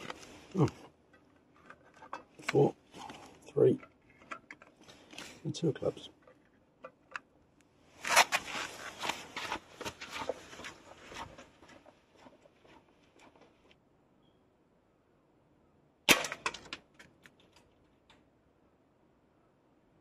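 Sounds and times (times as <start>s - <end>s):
footsteps with scuffs and clicks: 8.1s - 13.7s.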